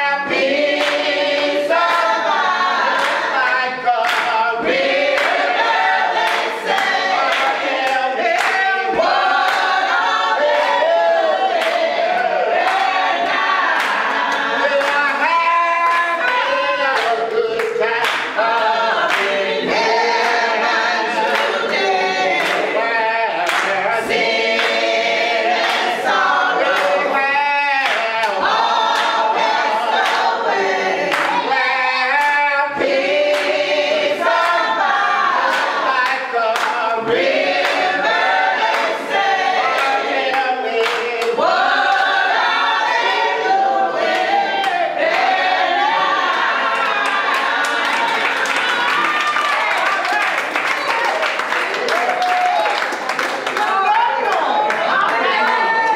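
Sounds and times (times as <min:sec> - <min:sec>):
group singing gospel unaccompanied: 0:00.0 - 0:49.8, 0:51.4 - 0:55.9
hand claps: 0:00.3 - 0:02.2, 0:02.9 - 0:05.5, 0:06.2 - 0:09.7, 0:13.7 - 0:19.4, 0:22.4 - 0:22.7, 0:23.4 - 0:25.0, 0:27.8 - 0:29.2, 0:31.1 - 0:31.5, 0:32.2 - 0:33.6, 0:35.4 - 0:37.9, 0:39.8 - 0:42.1, 0:46.8 - 0:55.9.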